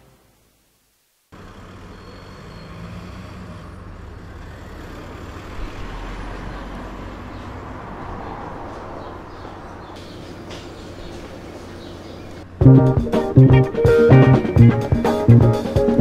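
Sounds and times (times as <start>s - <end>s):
road traffic rumble: 1.3s - 16.0s.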